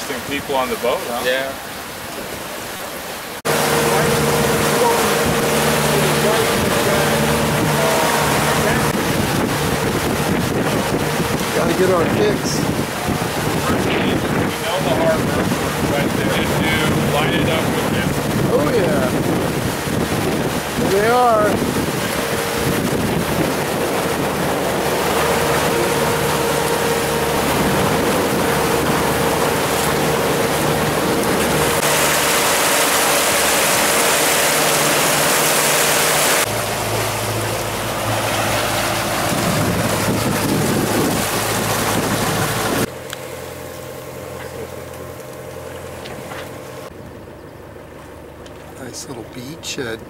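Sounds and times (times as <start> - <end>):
water rushing along hull: 0.0 - 50.0
wind on microphone: 3.5 - 35.3, 37.2 - 42.9
steady low drone: 3.5 - 49.0.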